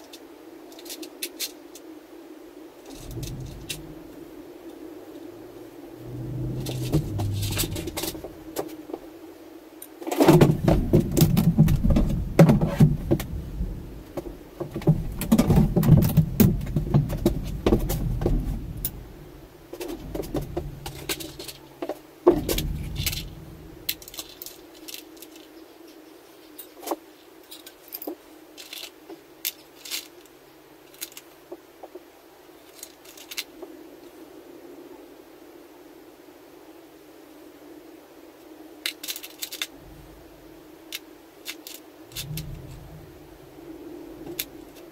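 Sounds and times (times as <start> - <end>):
small metal parts clinking: 0.0 - 1.8, 19.8 - 25.6, 26.4 - 31.4, 32.6 - 33.5, 38.8 - 40.2, 40.9 - 43.0
heavy low rumble: 2.8 - 9.0, 10.5 - 24.4, 39.7 - 40.7, 42.0 - 44.9.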